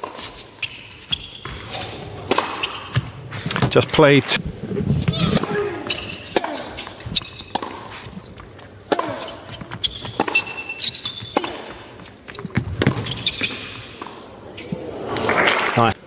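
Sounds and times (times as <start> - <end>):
shoes squeaking on court: 0.0 - 4.4, 5.0 - 15.4
racket striking tennis ball: 1.0 - 3.8, 5.0 - 14.2
ball bouncing: 1.4 - 3.8, 5.0 - 11.7, 12.3 - 14.2.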